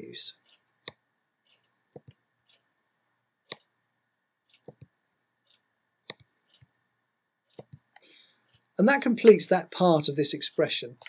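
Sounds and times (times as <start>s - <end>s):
computer mouse clicks: 0.5s - 2.7s, 3.5s - 3.8s, 4.5s - 6.8s, 7.5s - 8.7s.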